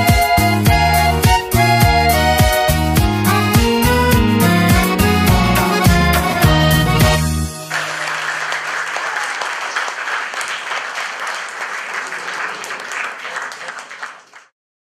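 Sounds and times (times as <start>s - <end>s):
audience applauding: 4.5s - 14.5s.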